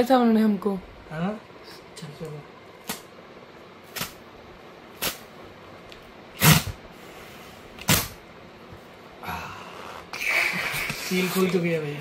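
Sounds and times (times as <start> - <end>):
cardboard tear strip ripping: 3.9 - 4.2.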